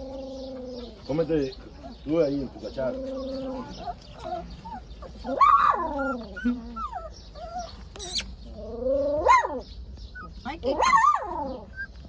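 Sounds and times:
puppies whining: 0.0s - 12.0s
puppy yelp: 2.9s - 12.0s.

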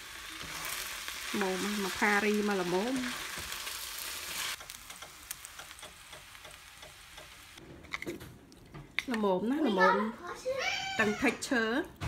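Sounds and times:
stir-fry sizzling in frying pan: 0.0s - 7.6s.

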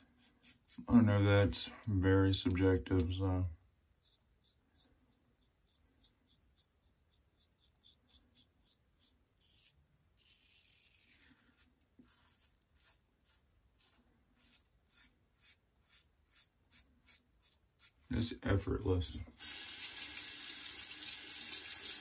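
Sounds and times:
razor scraping stubble: 0.0s - 1.0s, 3.9s - 20.0s.

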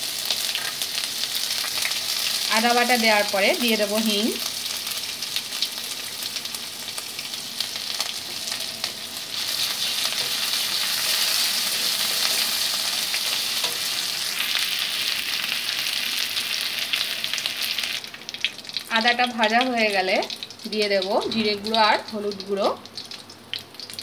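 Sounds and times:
spices sizzling in hot oil: 0.0s - 24.0s
metal spatula stirring: 9.6s - 14.0s.

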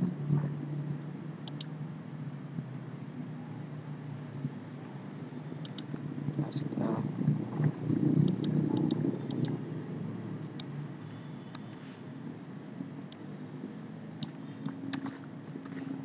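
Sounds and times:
low hum of computer: 0.0s - 16.0s
computer mouse clicking: 1.4s - 1.7s, 5.6s - 6.1s, 8.2s - 9.6s, 10.4s - 10.7s, 14.2s - 15.8s.

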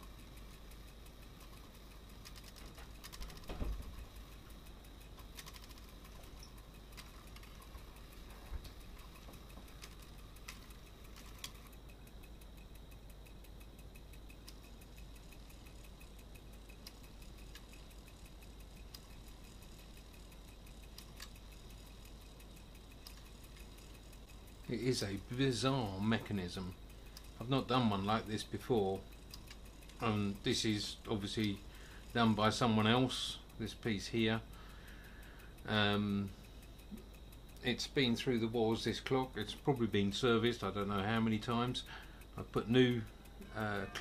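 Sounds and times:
clock ticking: 0.0s - 44.0s
faint running noise: 0.0s - 44.0s
clock lever clicks: 1.5s - 4.3s.

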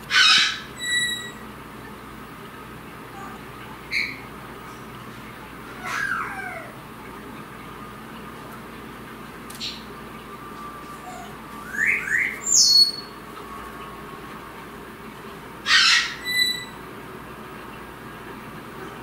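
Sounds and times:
cockatoo chirps: 0.1s - 1.4s, 11.0s - 13.1s, 15.6s - 16.8s
cockatoo squawking: 0.1s - 1.4s, 5.8s - 6.8s, 11.0s - 13.1s, 15.6s - 16.8s.

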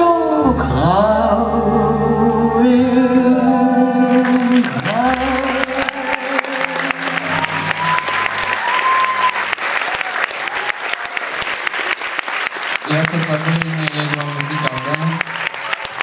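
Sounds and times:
cheering calls: 4.0s - 16.0s
audience applauding: 4.1s - 16.0s.

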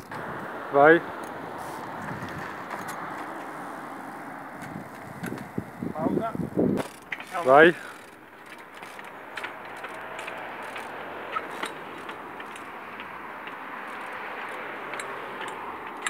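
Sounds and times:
road traffic: 0.0s - 16.0s
bike tyre clicks and knocks on stone: 4.5s - 5.8s, 6.7s - 16.0s.

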